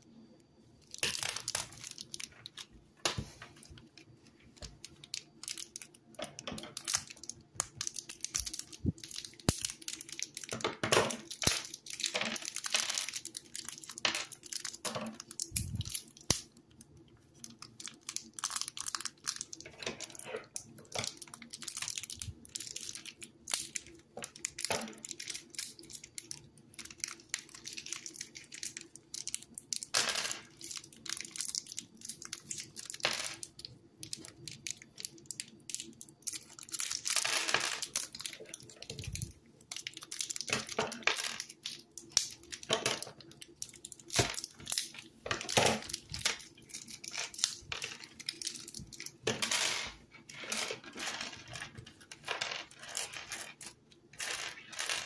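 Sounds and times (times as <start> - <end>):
paper wrappers tearing and crinkling: 17.4 - 29.9.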